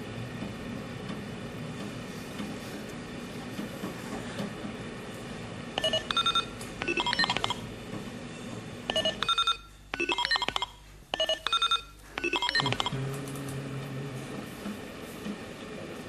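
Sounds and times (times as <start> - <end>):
electronic keypad beeps: 5.8 - 7.6, 8.9 - 13.0.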